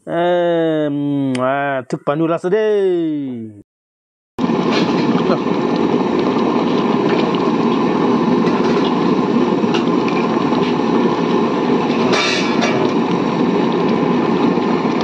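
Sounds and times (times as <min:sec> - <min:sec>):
pressure cooker hiss: 0:04.4 - 0:15.0
pressure cooker roaring: 0:04.4 - 0:15.0.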